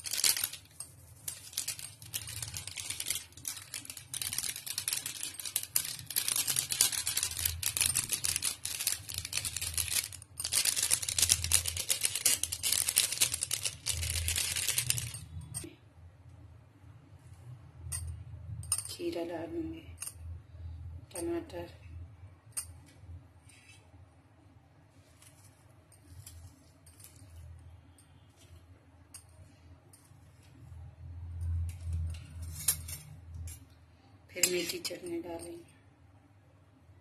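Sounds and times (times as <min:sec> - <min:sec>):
plastic sachet crinkling: 0:00.0 - 0:15.2.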